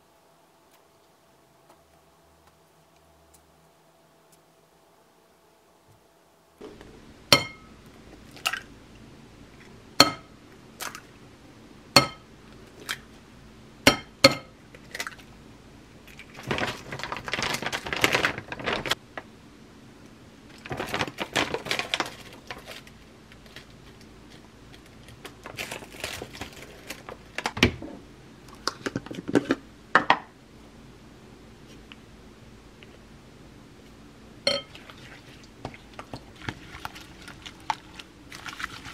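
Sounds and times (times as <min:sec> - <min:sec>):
glass bowl clinking: 0:07.3 - 0:07.7, 0:10.0 - 0:10.3, 0:12.0 - 0:12.2, 0:34.5 - 0:34.8
powder pouring from plastic bag: 0:16.2 - 0:19.0, 0:20.6 - 0:23.7.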